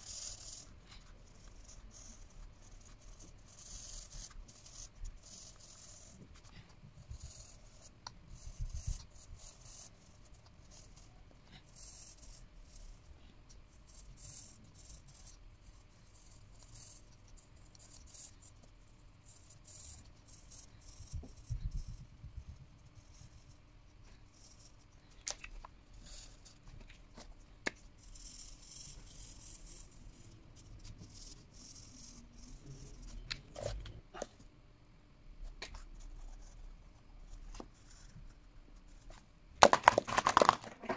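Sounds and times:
marker scribbling on paper: 0.0s - 13.1s, 13.7s - 24.8s, 25.9s - 34.3s
markers clicking and knocking: 39.6s - 40.9s.

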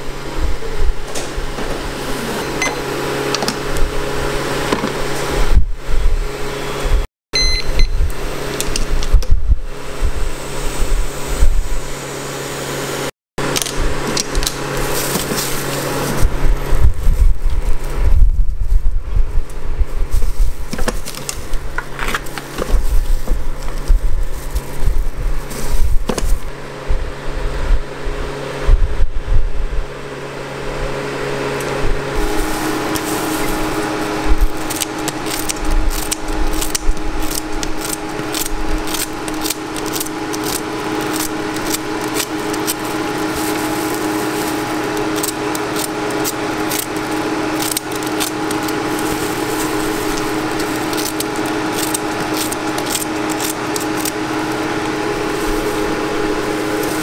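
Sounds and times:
kitchen appliance hum: 0.0s - 57.0s
scissors snipping waffle: 34.6s - 43.0s.

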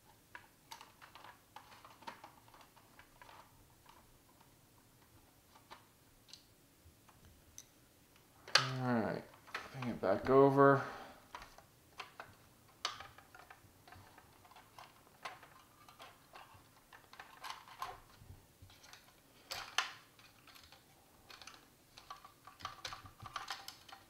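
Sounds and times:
plastic toy parts clicking: 0.3s - 4.0s, 11.3s - 24.0s.

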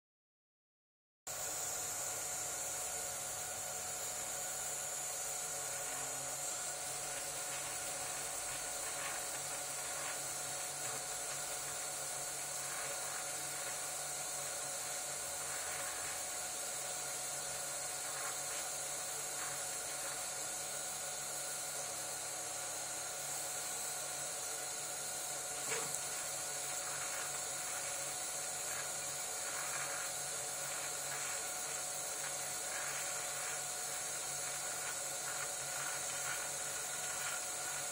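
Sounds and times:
high even hiss: 1.4s - 37.9s
printer motors whining: 23.8s - 37.9s.

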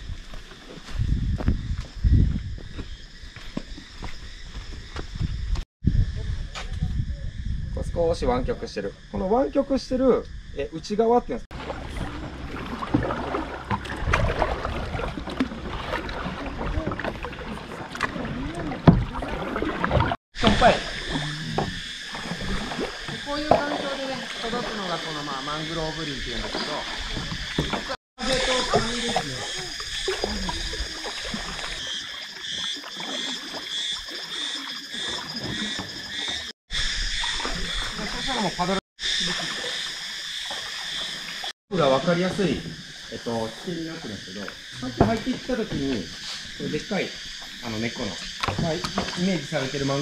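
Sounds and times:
paddle strokes splashing water: 11.5s - 41.5s, 48.3s - 49.7s
pulsing chorus of calling animals: 15.1s - 39.9s.

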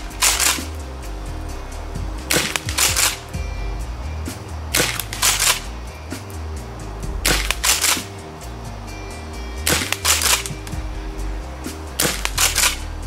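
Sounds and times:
background music: 0.0s - 13.0s
airsoft shotgun shots: 0.2s - 0.8s, 2.3s - 3.3s, 4.7s - 5.7s, 7.2s - 8.1s, 9.7s - 10.5s, 12.0s - 12.8s.

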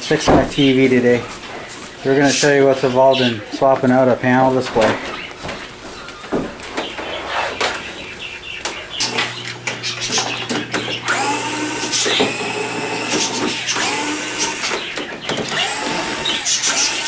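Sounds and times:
power screwdriver motor whirring: 11.0s - 14.9s, 15.5s - 17.0s.

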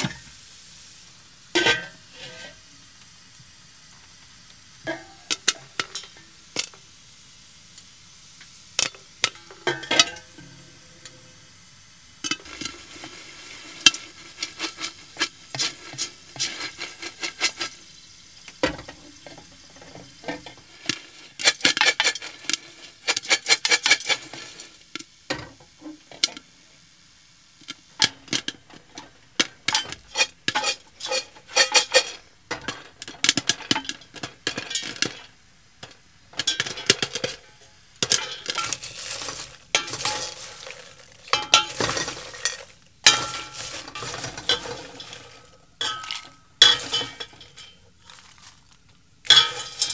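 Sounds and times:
faint sizzle of frying food: 0.0s - 49.9s
metal lid clinking: 1.6s - 2.6s, 9.2s - 11.2s, 28.3s - 35.3s, 36.4s - 47.8s, 49.2s - 49.9s
spoon scraping a pot: 1.6s - 2.6s, 12.3s - 17.8s, 18.8s - 24.7s, 28.3s - 35.3s, 36.4s - 48.6s, 49.3s - 49.9s.

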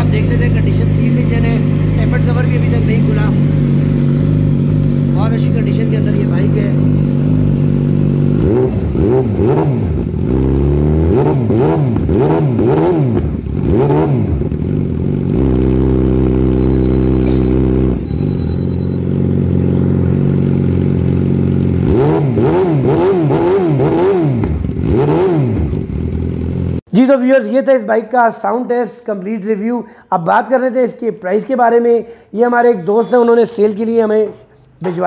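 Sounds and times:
motorcycle engine revving and idling: 0.0s - 26.9s.

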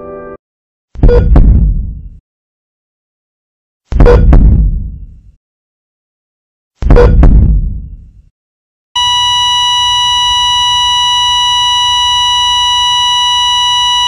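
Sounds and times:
steady electronic beep tone: 9.0s - 14.0s.

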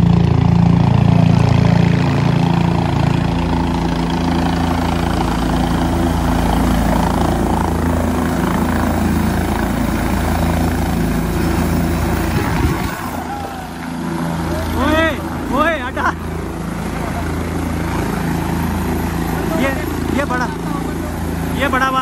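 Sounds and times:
helicopter rotor and engine: 0.0s - 22.0s.

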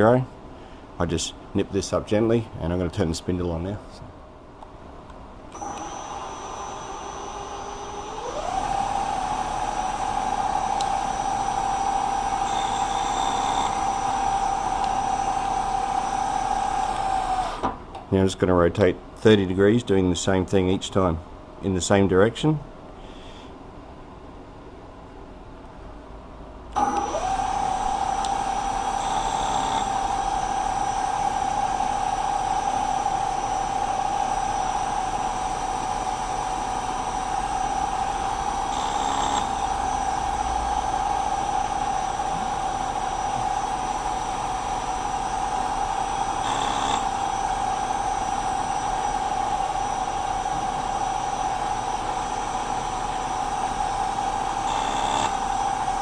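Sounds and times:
milling machine spindle whine: 5.5s - 17.6s, 26.8s - 56.0s.

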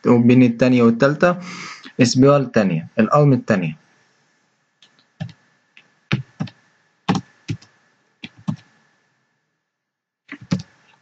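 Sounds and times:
keyboard typing clicks: 6.1s - 8.7s, 10.3s - 10.7s.

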